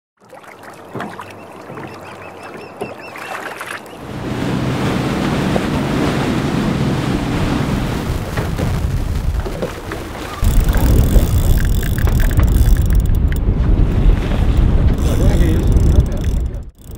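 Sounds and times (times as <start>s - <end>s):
water rushing past hull: 0.2s - 16.9s
wind rushing: 4.2s - 16.7s.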